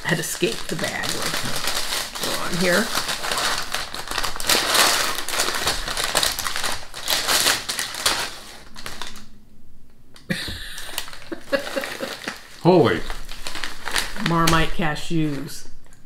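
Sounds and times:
packing paper crinkling and rustling: 0.0s - 9.3s, 10.8s - 15.7s.

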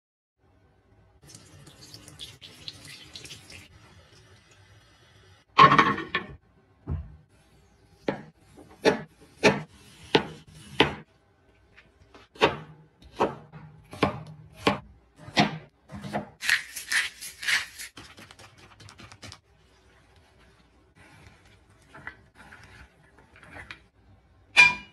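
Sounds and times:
knife chopping on wooden board: 8.0s - 11.0s, 12.4s - 16.4s.

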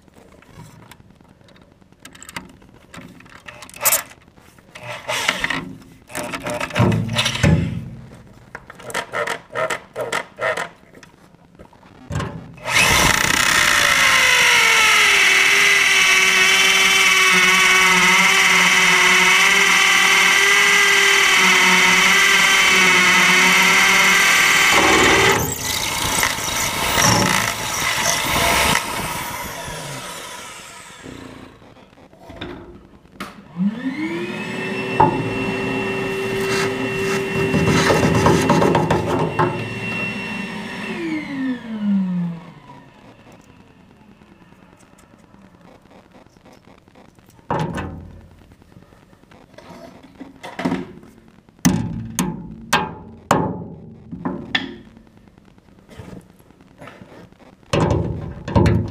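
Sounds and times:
hammer drill boring into concrete: 12.6s - 31.6s
motor whining: 12.6s - 31.8s, 33.5s - 44.9s.

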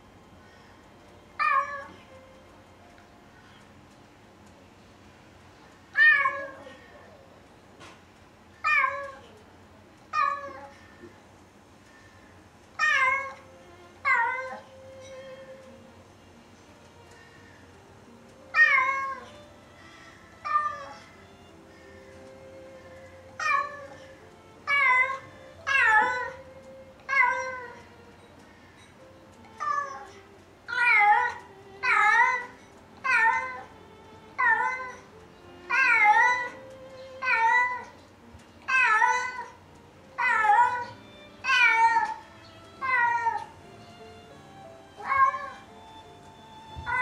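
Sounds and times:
cat meowing: 1.4s - 2.1s, 5.9s - 6.9s, 8.6s - 9.3s, 10.1s - 10.8s, 12.8s - 15.6s, 18.5s - 19.4s, 20.4s - 21.1s, 22.5s - 27.9s, 29.4s - 38.0s, 38.6s - 43.6s, 44.9s - 45.7s, 46.7s - 47.0s.

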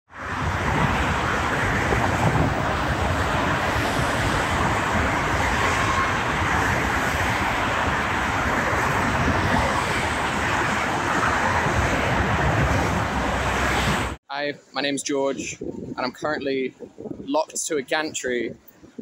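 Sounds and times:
motorway traffic passing: 0.1s - 14.2s
wind rumbling on microphone: 0.1s - 14.2s, 14.8s - 19.0s.

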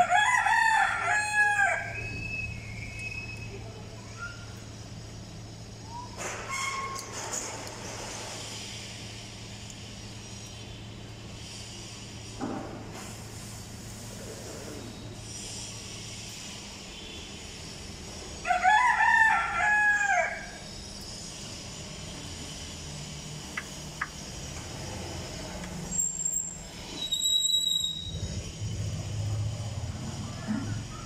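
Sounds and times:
rooster crowing: 0.0s - 2.1s, 18.4s - 20.7s.

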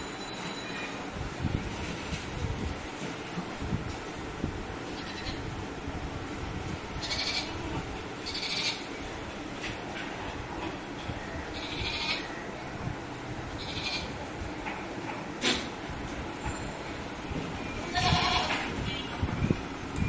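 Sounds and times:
steady background hum: 0.0s - 20.0s
goats bleating: 7.0s - 8.9s, 11.6s - 12.3s, 17.9s - 18.7s.

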